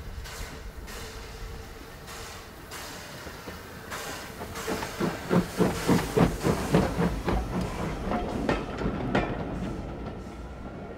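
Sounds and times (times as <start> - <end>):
steam hiss: 0.0 - 8.5
steam locomotive exhaust beats: 0.0 - 10.8.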